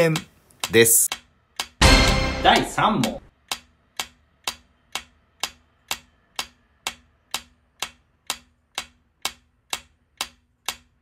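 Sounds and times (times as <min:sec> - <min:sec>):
clock ticking: 0:00.0 - 0:11.0.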